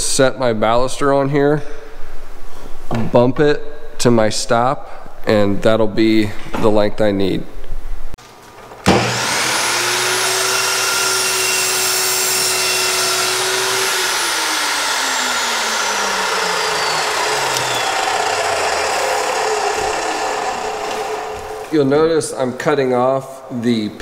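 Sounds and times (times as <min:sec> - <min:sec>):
metal-cutting saw whine: 0:08.9 - 0:22.1
saw switch click: 0:17.4 - 0:17.9.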